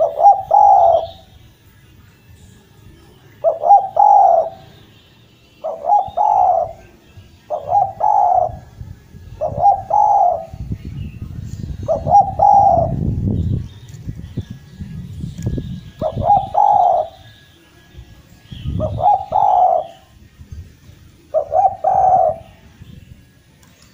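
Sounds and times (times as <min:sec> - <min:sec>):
dove cooing: 0:00.0 - 0:01.4, 0:03.3 - 0:04.8, 0:05.6 - 0:10.7, 0:11.8 - 0:13.1, 0:16.0 - 0:17.4, 0:18.7 - 0:20.1, 0:21.3 - 0:22.6.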